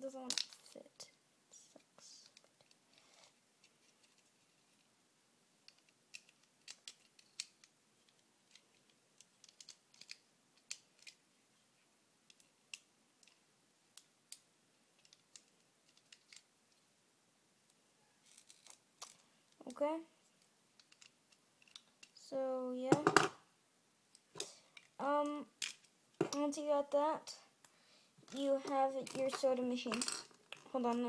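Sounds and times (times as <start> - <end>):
plastic bricks clicking together: 0.3 - 0.6, 5.6 - 11.2, 15.0 - 16.5, 20.8 - 22.2, 25.6 - 26.4.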